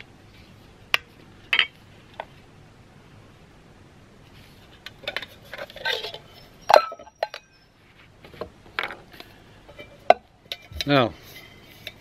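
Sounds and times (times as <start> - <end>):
metal pot and cup clinking: 5.0 - 7.6.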